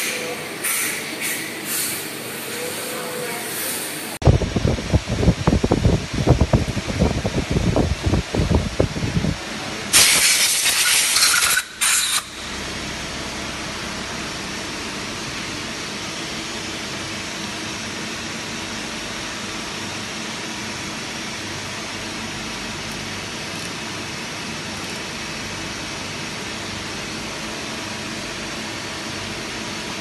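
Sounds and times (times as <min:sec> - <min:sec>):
machinery humming: 0:00.0 - 0:30.0
compressed air hissing: 0:00.6 - 0:02.8, 0:09.9 - 0:12.5.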